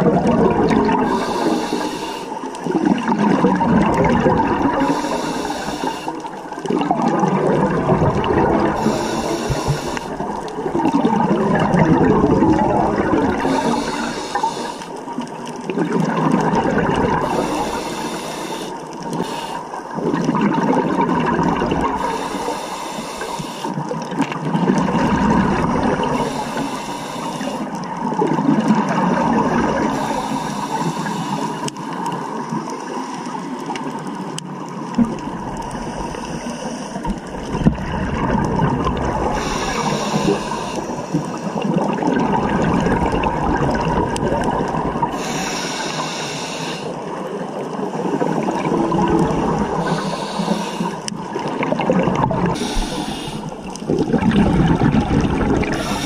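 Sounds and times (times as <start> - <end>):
regulator inhale hiss: 1.0 - 2.5, 4.8 - 6.4, 8.7 - 10.4, 13.4 - 15.0, 17.2 - 19.9, 21.9 - 23.8, 26.0 - 27.8, 29.8 - 32.1, 35.6 - 37.3, 39.3 - 41.6, 45.1 - 47.2, 49.7 - 51.5, 52.5 - 53.8, 55.7 - 56.0
bubbling exhaust: 2.7 - 6.0, 6.7 - 14.7, 35.0 - 46.6, 48.3 - 56.0.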